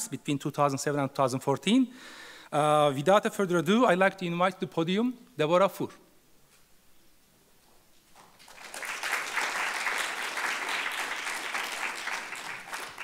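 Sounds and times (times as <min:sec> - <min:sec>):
audience applauding: 0:08.4 - 0:13.0.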